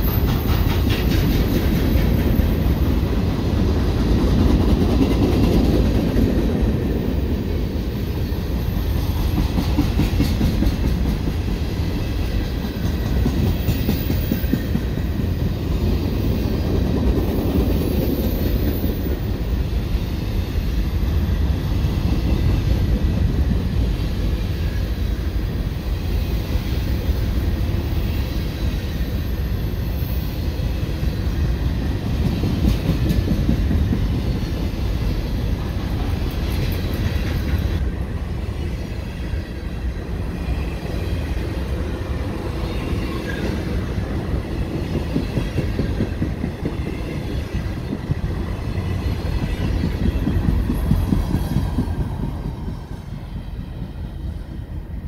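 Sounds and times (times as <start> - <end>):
clickety-clack over rail joints: 0.0 - 7.3, 8.6 - 19.6, 31.7 - 37.9, 42.4 - 54.7
freight train wheels rumbling: 0.0 - 55.0.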